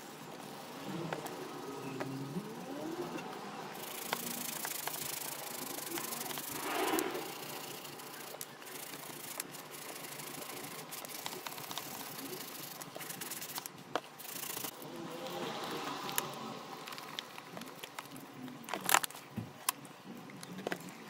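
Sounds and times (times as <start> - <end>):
brush scrubbing a sneaker: 3.8 - 14.7.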